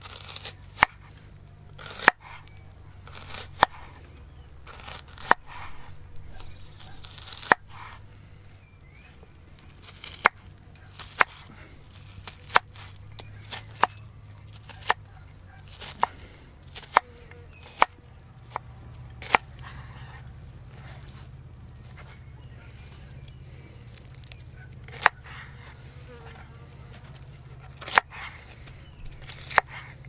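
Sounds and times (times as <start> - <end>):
knife chopping on wooden board: 0.1 - 1.0, 1.8 - 2.4, 3.1 - 4.0, 4.7 - 8.0, 10.0 - 20.2, 24.9 - 25.7, 27.6 - 28.4.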